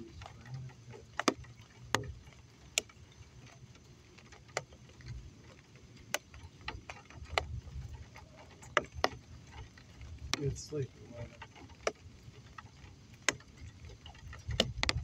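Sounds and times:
low steady rumble: 0.0 - 15.0
raindrops tapping on hard surface: 0.0 - 15.0.

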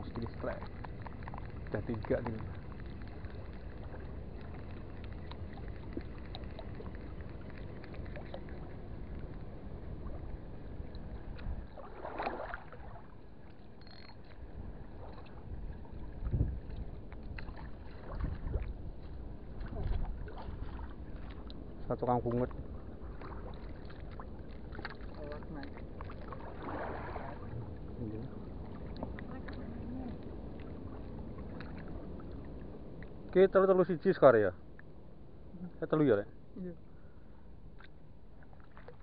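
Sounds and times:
wind on microphone: 14.6 - 21.3.

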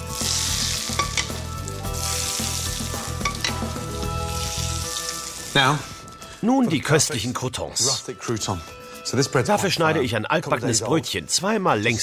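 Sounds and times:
oil sizzling in a frying pan: 0.0 - 5.8
metal spoon tapping a pan: 0.9 - 1.4, 3.2 - 3.7.

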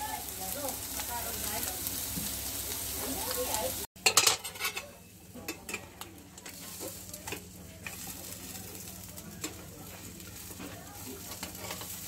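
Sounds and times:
fish sizzling in a frying pan: 0.0 - 12.0
metal spatula scraping a pan: 4.0 - 4.9, 11.2 - 12.0.

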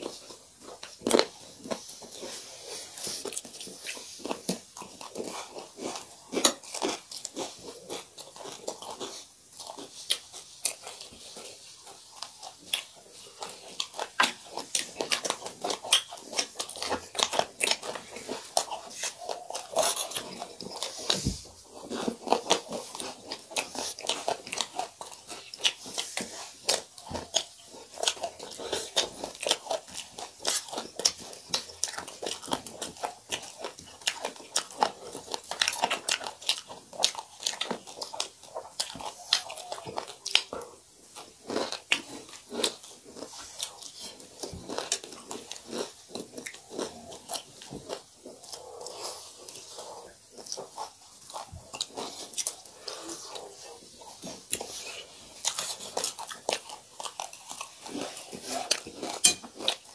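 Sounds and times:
person chewing crisp food: 0.0 - 59.9.

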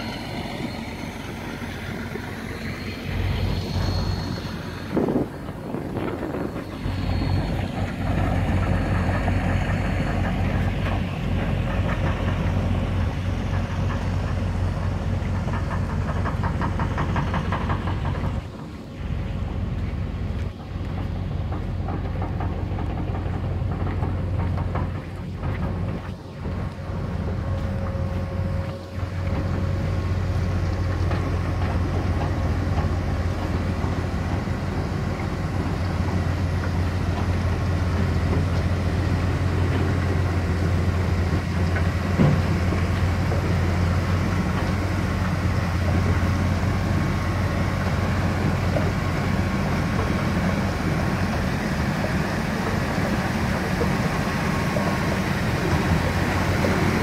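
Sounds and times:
faint high whine: 0.0 - 8.4
heavy machinery low drone: 0.0 - 57.0.

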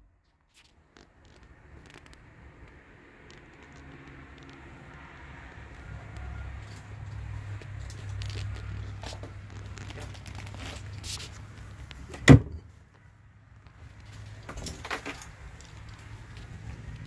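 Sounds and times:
light clicks and rattles: 0.5 - 5.1, 13.6 - 17.0
drawer shutting knock: 12.2 - 12.6.

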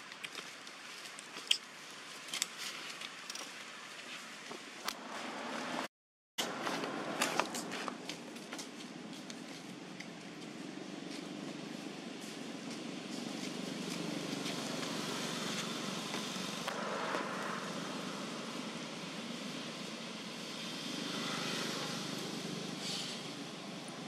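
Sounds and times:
road traffic passing: 4.8 - 24.0.

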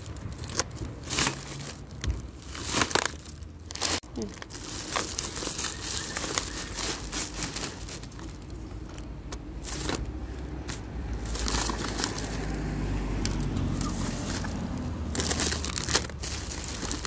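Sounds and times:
plastic bags crinkling: 0.0 - 12.6, 13.8 - 17.0.

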